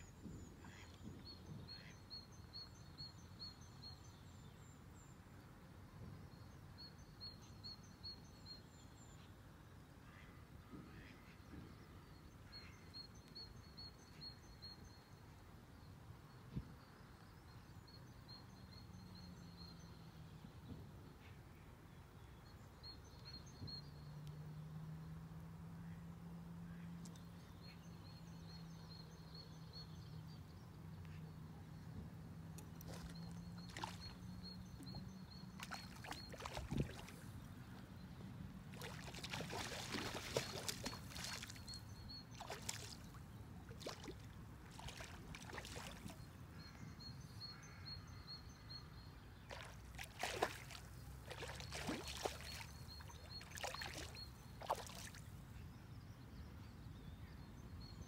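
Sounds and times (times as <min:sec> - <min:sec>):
fish splashing at water surface: 0:38.7 - 0:41.7, 0:42.4 - 0:43.1, 0:49.5 - 0:55.2.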